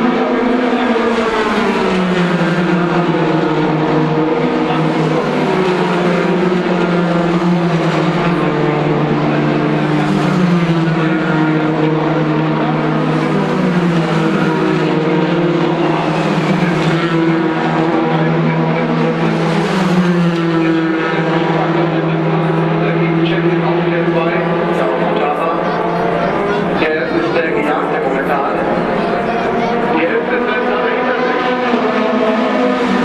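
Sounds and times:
racing car engines at high revs: 0.0s - 33.0s.

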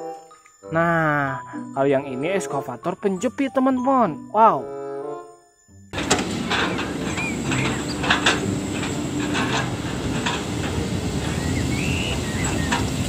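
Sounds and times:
logs clattering in grapple: 6.0s - 10.6s
diesel engines running: 6.0s - 13.0s.

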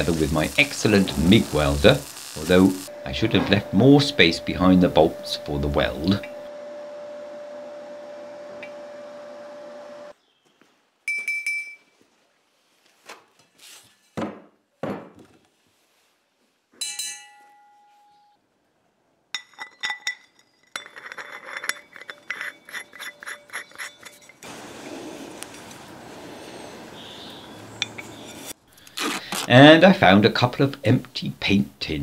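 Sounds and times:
steady hum: 0.0s - 10.1s
knocks: 14.2s - 15.3s
metal parts clinking: 19.4s - 24.4s
metal scraping: 19.5s - 25.6s, 27.8s - 28.6s.

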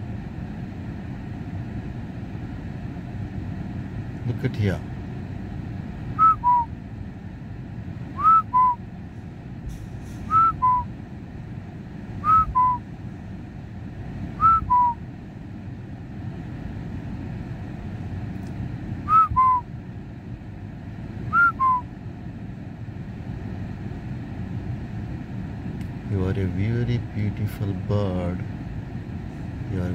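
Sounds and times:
low rumble inside car: 0.0s - 29.9s
person whistling two-note call: 6.2s - 6.7s, 8.2s - 8.8s, 10.3s - 10.9s, 12.2s - 12.8s, 14.4s - 15.0s, 19.1s - 19.7s, 21.3s - 21.9s.

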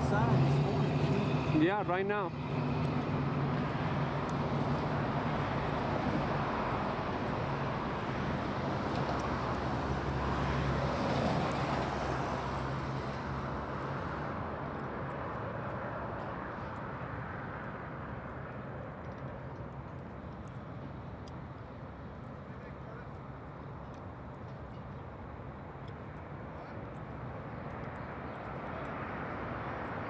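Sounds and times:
engine drone with low hum: 0.0s - 30.0s
faint light clicks: 17.6s - 21.4s.

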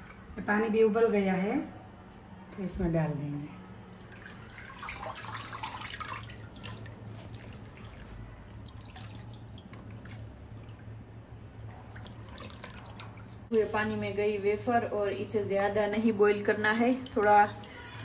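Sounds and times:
water dripping and splashing: 4.1s - 13.5s, 16.3s - 18.0s.

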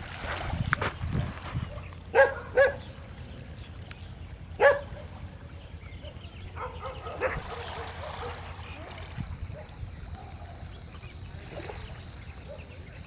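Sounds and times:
dog barking: 2.1s - 2.8s, 4.6s - 5.1s, 6.0s - 8.4s.

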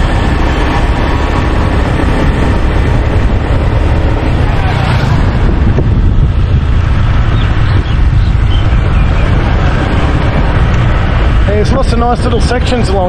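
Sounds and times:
scooter engine: 0.0s - 13.0s
wind buffeting microphone: 0.0s - 13.0s.

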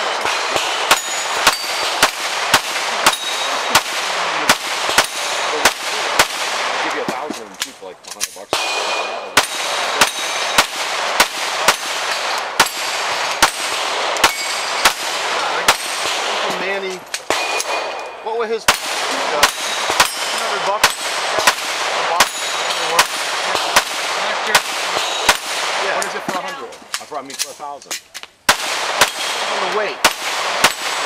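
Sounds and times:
steel targets ringing: 0.0s - 4.0s, 8.6s - 10.8s, 11.6s - 16.2s, 17.3s - 23.1s
pistol shots: 0.0s - 27.5s, 28.4s - 31.0s.

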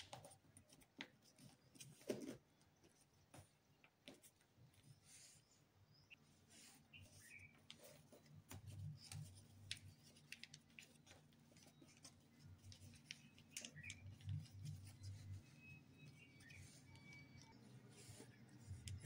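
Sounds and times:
paper being folded and creased: 6.5s - 19.0s.

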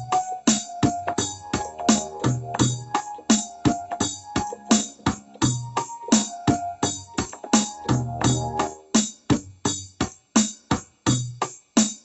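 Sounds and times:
keyboard chords: 0.0s - 9.0s
drum machine beat: 0.0s - 12.0s.

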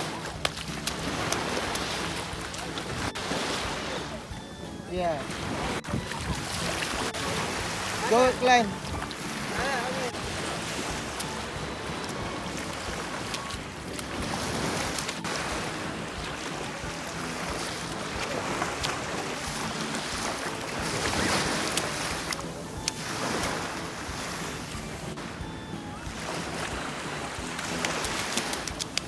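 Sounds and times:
sea waves washing on sand: 0.0s - 4.2s, 5.0s - 25.4s, 26.0s - 29.0s
wind buffeting microphone: 5.4s - 7.9s.

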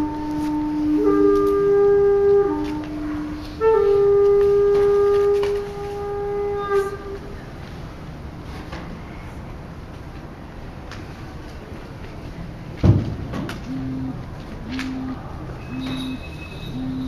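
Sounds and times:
wind instrument slow melody: 0.0s - 7.6s, 13.7s - 17.0s.

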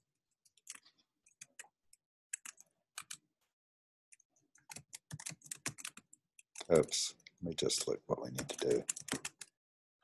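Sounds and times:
computer keyboard typing: 0.4s - 3.2s, 4.1s - 6.9s, 8.3s - 9.6s.

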